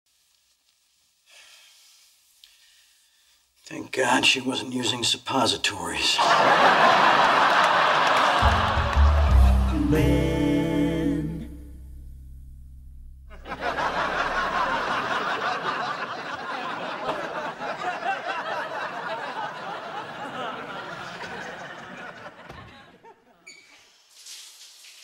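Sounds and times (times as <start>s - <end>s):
studio audience laughing: 6.2s - 9.8s, 13.3s - 23.4s.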